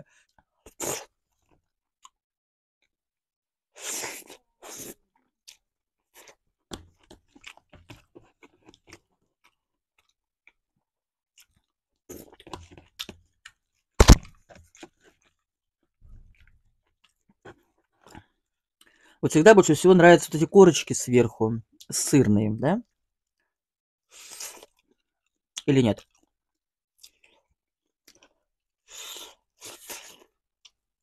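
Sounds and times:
person chewing food: 4.1 - 19.0, 23.3 - 25.4, 26.0 - 30.9.

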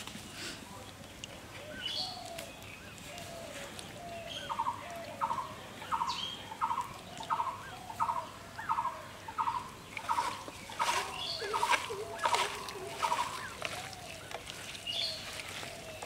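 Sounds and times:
bird calling: 1.6 - 16.0
wet squelches of mixing by hand: 9.7 - 16.0.

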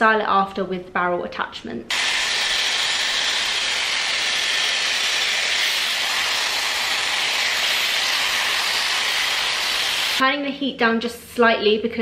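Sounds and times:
hair styler blowing air: 1.9 - 10.2.

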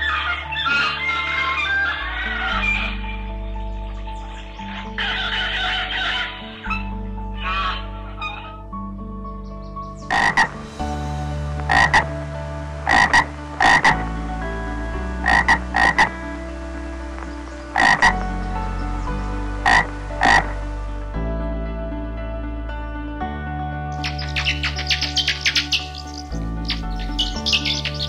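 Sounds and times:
animal croaking: 0.0 - 3.2, 4.6 - 8.6, 10.1 - 10.6, 11.6 - 12.1, 12.8 - 14.0, 15.2 - 16.1, 17.8 - 18.2, 19.6 - 20.6, 24.0 - 28.0.

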